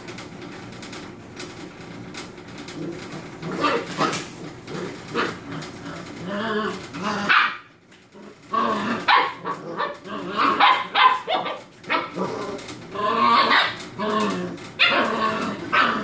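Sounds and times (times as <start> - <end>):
puppies yipping and barking: 8.7 - 16.0.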